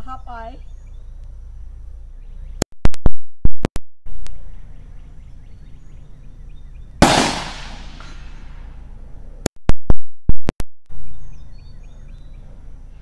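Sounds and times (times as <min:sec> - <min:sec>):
pistol shots: 0:07.0 - 0:08.5.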